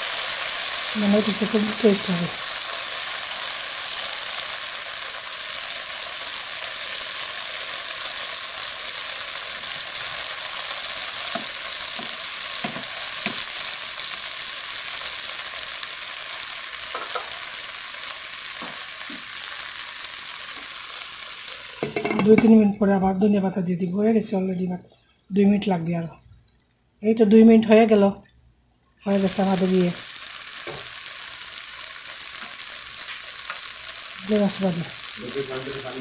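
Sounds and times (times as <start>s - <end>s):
vegetables sizzling in a frying pan: 0.0s - 22.7s, 29.0s - 36.0s.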